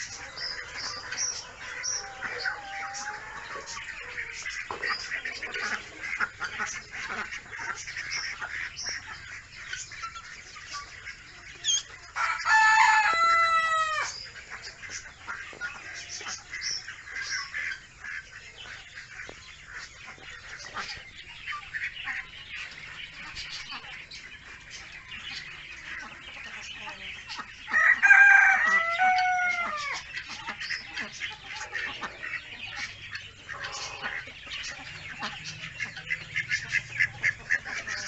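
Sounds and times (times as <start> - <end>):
ducklings peeping: 0.0 - 38.0
rooster crowing: 1.6 - 3.8, 12.2 - 14.2, 27.8 - 30.0.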